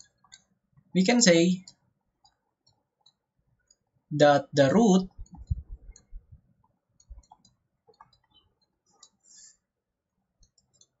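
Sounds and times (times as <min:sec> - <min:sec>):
soft low thumps: 0:05.1 - 0:07.3
stylus tapping on tablet screen: 0:05.1 - 0:09.2, 0:10.4 - 0:11.0.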